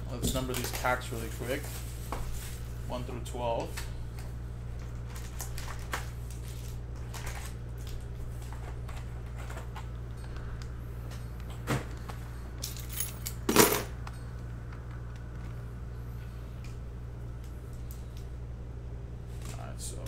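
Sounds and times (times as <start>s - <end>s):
steady low hum: 0.0s - 20.0s
foil card packs rustling: 0.3s - 2.8s, 3.4s - 10.0s.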